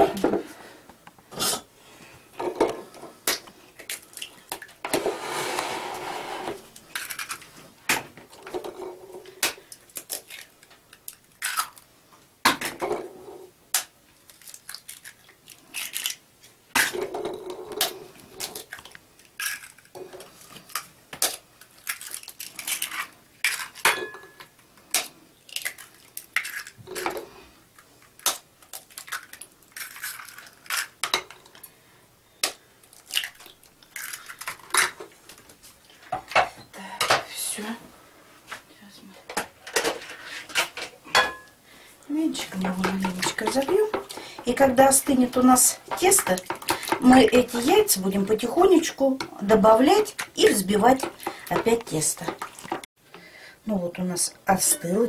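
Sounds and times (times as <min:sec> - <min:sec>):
eggshells crunching: 0:14.2 - 0:16.2, 0:20.6 - 0:23.8, 0:28.1 - 0:31.0
eggshells tapping on bowl: 0:42.4 - 0:47.7, 0:49.8 - 0:52.9.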